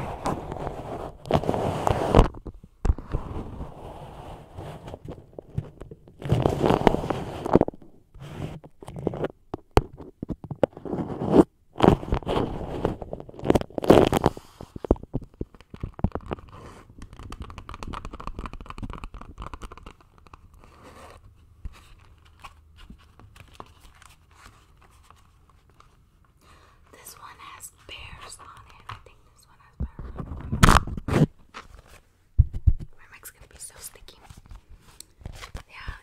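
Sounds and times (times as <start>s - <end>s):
wax wrap crinkling on microphone: 8.8s - 26.0s, 27.0s - 36.0s
soft rustling: 19.5s - 36.0s.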